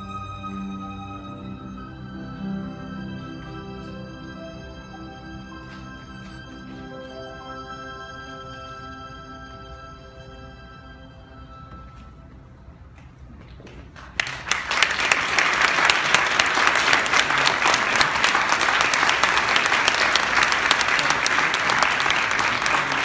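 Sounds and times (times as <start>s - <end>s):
audience applauding: 13.7s - 23.0s.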